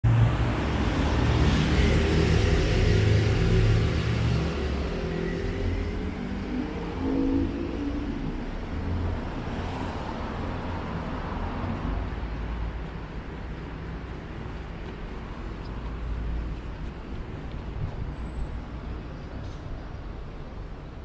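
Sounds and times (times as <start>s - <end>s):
cars passing: 0.0s - 21.0s
traffic noise: 0.0s - 21.0s
motorcycle passing: 0.1s - 8.4s.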